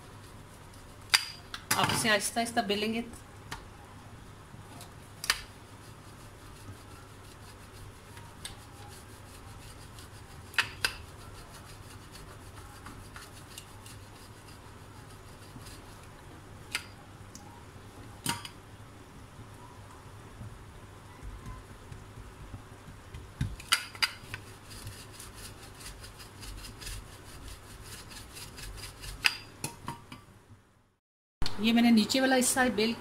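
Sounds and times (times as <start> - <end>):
rolling pin rubbing on dough: 0.0 - 1.1, 5.0 - 16.1, 24.2 - 29.3.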